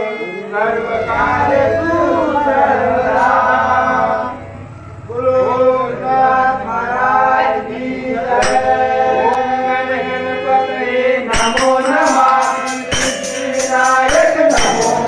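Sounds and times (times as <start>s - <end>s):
men singing together: 0.0s - 15.0s
jingling percussion: 8.4s - 8.9s, 11.3s - 15.0s
hand-played barrel drum: 11.4s - 15.0s.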